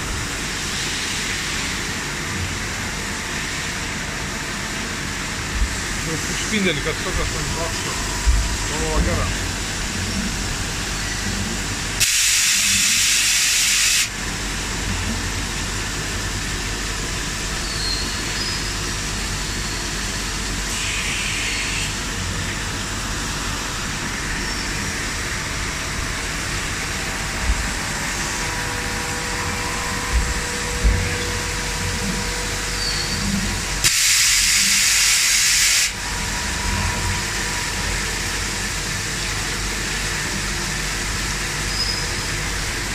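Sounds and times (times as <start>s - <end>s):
loud hissing: 12.0s - 14.1s, 32.4s - 36.0s
machine humming: 14.1s - 42.9s
low thumps: 29.4s - 32.0s.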